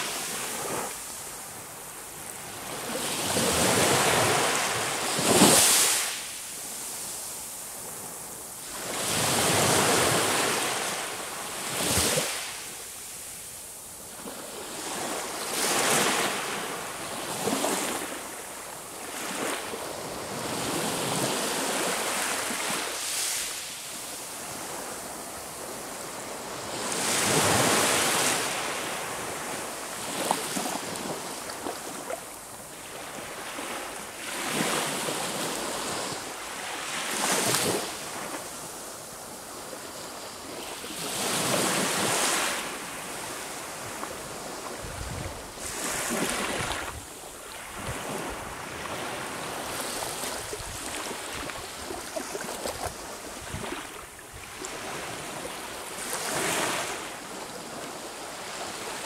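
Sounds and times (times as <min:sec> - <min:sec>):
sea waves breaking on shore: 0:40.3 - 0:59.0.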